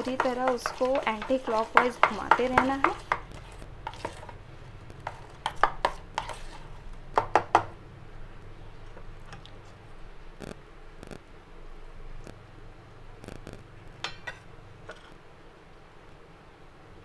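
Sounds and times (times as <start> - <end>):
spoon beating batter in bowl: 0.0 - 7.7.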